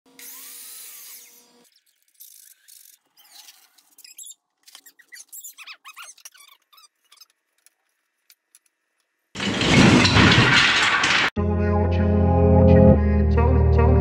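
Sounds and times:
high squeaks and clicks: 0.3 - 8.8.

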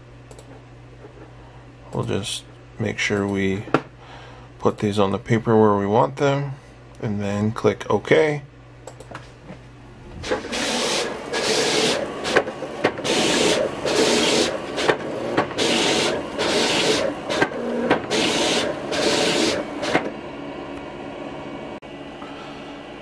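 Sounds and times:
vinyl cutter motors whirring: 10.0 - 21.8.

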